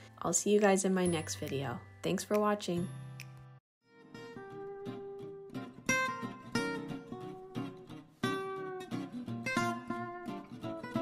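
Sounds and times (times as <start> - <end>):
plucked guitar notes: 4.0 - 11.0.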